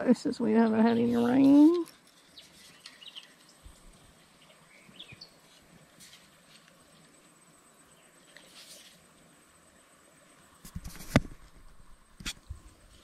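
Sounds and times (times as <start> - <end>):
faint bird chirps: 2.2 - 5.5.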